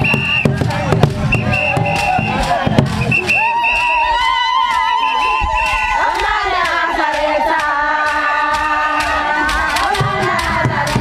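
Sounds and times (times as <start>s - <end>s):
sharp rhythmic hits: 0.0s - 4.0s, 4.7s - 11.0s
group of voices singing and chanting: 4.2s - 11.0s.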